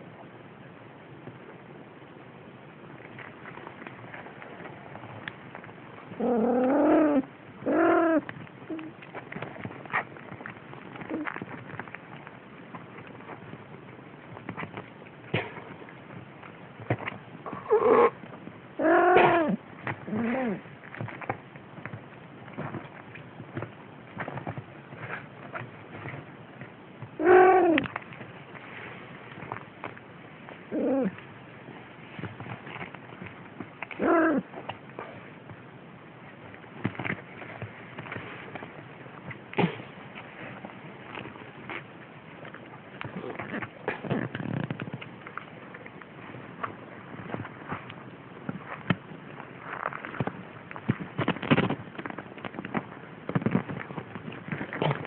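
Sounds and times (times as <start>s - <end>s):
kittens rustling on bedding: 27.8s - 55.0s.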